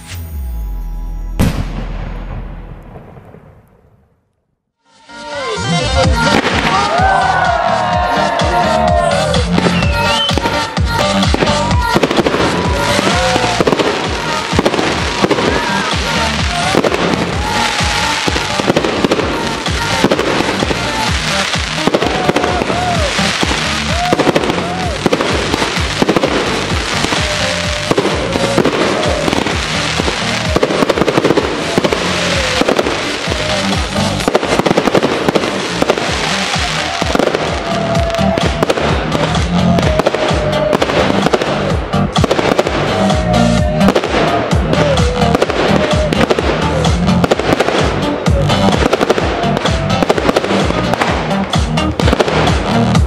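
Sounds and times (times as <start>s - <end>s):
music playing: 0.0s - 2.6s, 4.8s - 53.0s
fireworks bursting: 0.0s - 4.3s, 4.9s - 53.0s.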